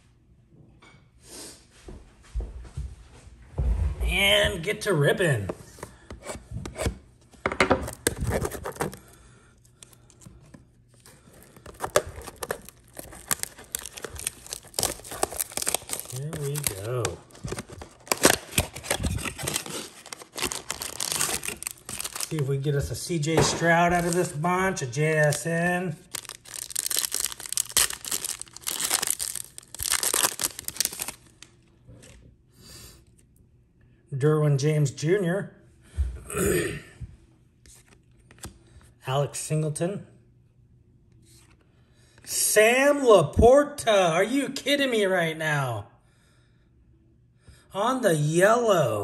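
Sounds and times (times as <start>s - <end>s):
cardboard flap tearing: 7.8s - 9.0s, 11.4s - 22.4s, 26.1s - 31.2s
crinkling: 7.8s - 22.5s, 23.5s - 24.4s, 25.2s - 32.2s
cardboard box handling: 11.4s - 22.4s.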